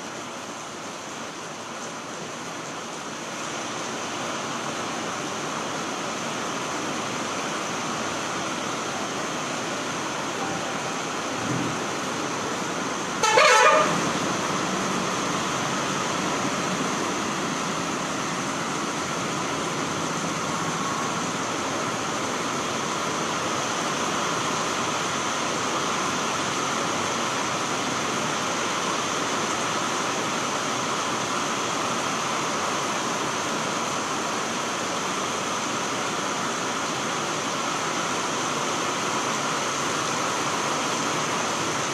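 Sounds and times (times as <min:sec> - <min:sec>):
heavy rain: 0:00.0 - 0:41.9
vehicle horn honking: 0:13.2 - 0:14.0.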